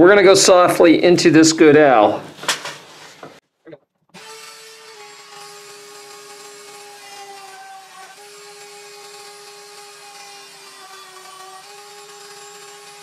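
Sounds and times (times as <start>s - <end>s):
rotary tool motor whine: 4.2s - 13.0s.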